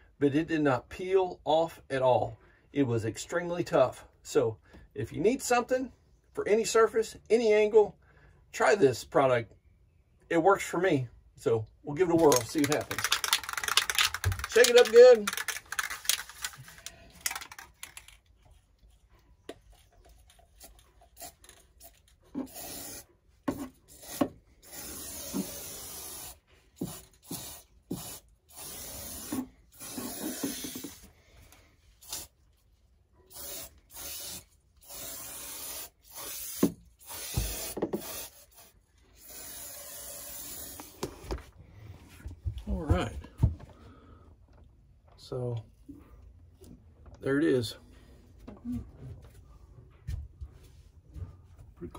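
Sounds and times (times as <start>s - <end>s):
spray paint can hissing: 12.2s - 16.6s, 21.2s - 23.1s, 23.9s - 31.0s, 32.0s - 32.3s, 33.3s - 41.1s.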